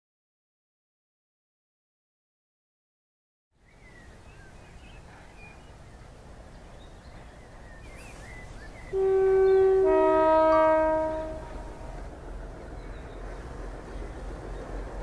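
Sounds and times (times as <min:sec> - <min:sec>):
birds chirping: 0:03.6 - 0:15.0
locomotive horn: 0:08.9 - 0:12.0.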